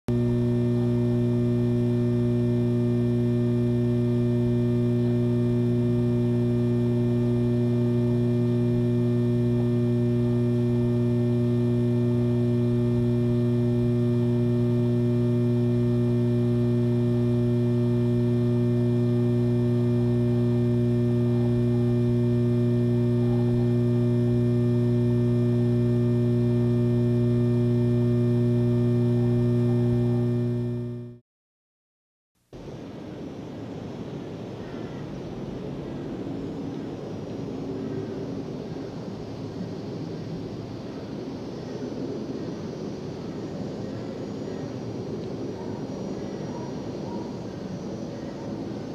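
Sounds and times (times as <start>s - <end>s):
low electronic hum: 0.0s - 31.2s.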